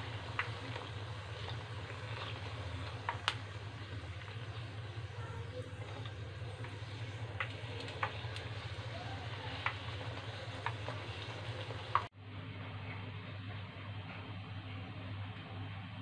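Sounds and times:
bread sizzling in hot oil: 0.0 - 12.1
steady low hum: 0.0 - 16.0.

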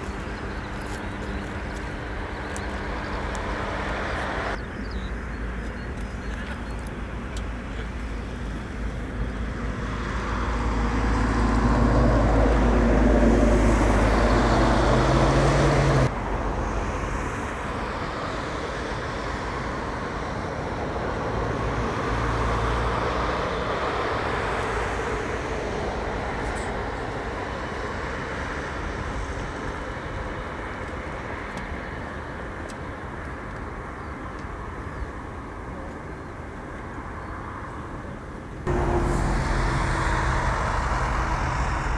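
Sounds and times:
jet engines rumbling while taxiing: 0.0 - 41.9.

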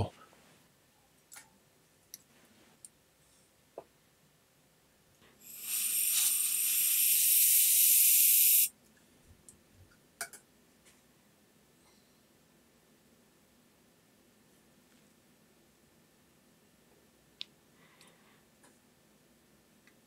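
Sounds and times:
hissing spray burst: 5.4 - 8.7.

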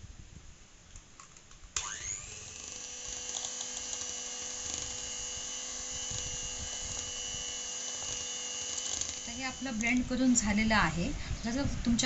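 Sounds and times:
electric hand mixer whining: 1.8 - 10.2.

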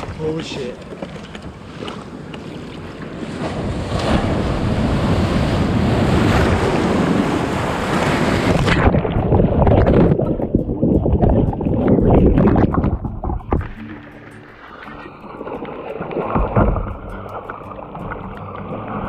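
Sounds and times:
churning water underwater: 0.0 - 19.0
surf rushing: 2.6 - 19.0
knocks on kayak: 16.3 - 17.0.

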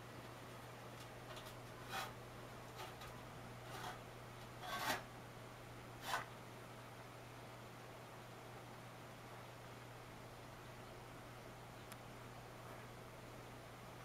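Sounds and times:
ceramic bowl scraping metal tray: 1.8 - 2.2, 3.6 - 4.0, 4.6 - 5.1, 6.0 - 6.3.

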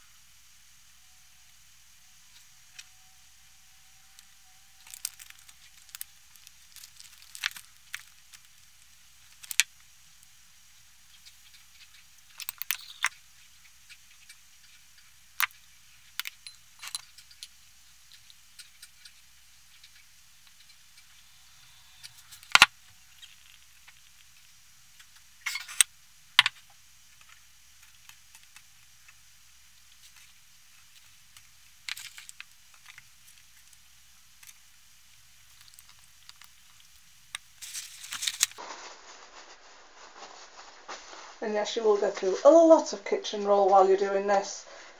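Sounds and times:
paper crinkling and rustling: 4.7 - 9.7, 37.6 - 42.4.

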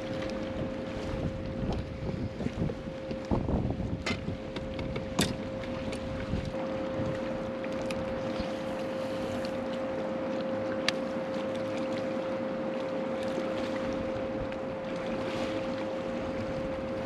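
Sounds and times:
wind noise on microphone: 0.0 - 7.4
electric trolling motor whine: 0.0 - 17.0.

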